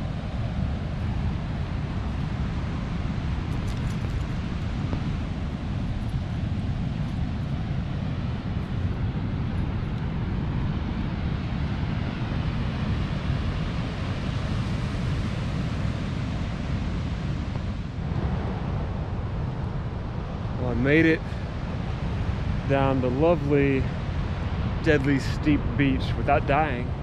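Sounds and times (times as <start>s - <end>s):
wind buffeting microphone: 0.0s - 27.0s
ocean surf breaking: 10.3s - 27.0s.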